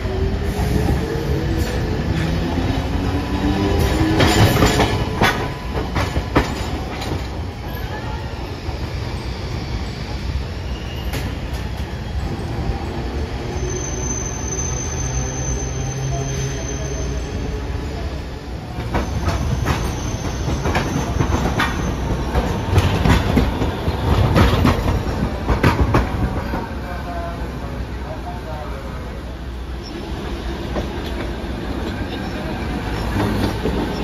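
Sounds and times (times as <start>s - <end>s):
streetcar low rumble: 0.0s - 34.0s
wheels clacking over rail joints: 3.8s - 7.6s, 18.7s - 26.8s.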